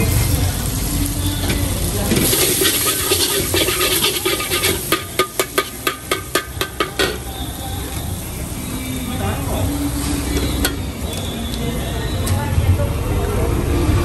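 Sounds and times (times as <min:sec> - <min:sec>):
noodles sizzling in a wok: 0:00.0 - 0:12.2
ladle clanking on a wok: 0:01.4 - 0:07.4
metal ladle scraping a wok: 0:01.5 - 0:07.4, 0:09.8 - 0:11.3.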